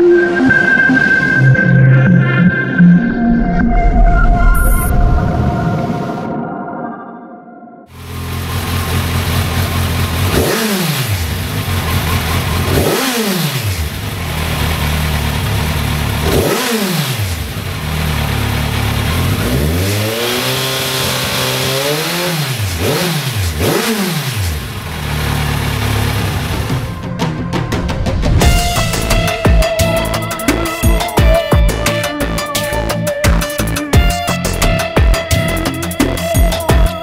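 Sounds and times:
motorcycle engine revving: 7.9 - 37.0.

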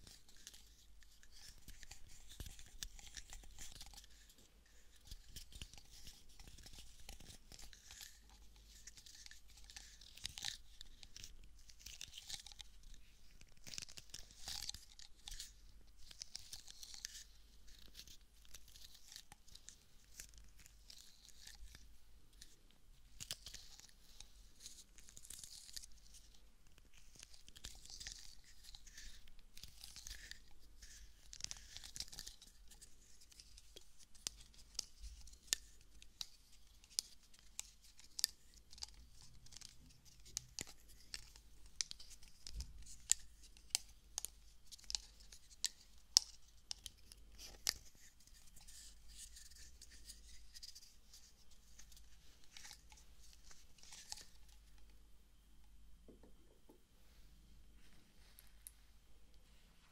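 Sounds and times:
soft high rustling: 56.2 - 59.9.

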